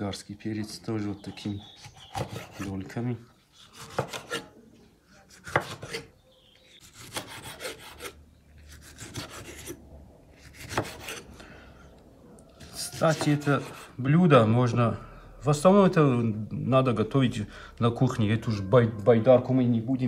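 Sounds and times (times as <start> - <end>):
knife slicing pepper: 3.6 - 4.5, 5.3 - 6.1, 10.4 - 11.2.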